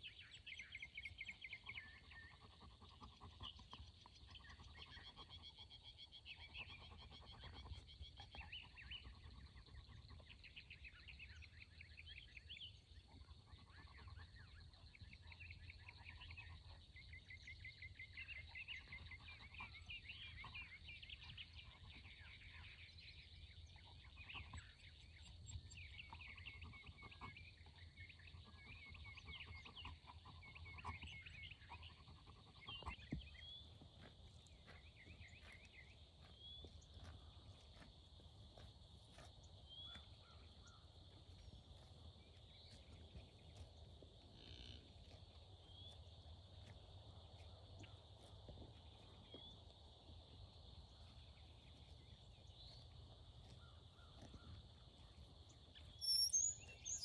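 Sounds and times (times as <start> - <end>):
songbirds chirping and trilling: 0.0 - 57.0.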